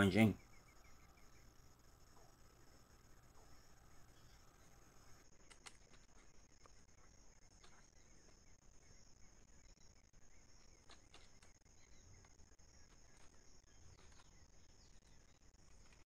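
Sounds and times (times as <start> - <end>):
faint clicks: 4.2 - 6.8, 10.8 - 11.6.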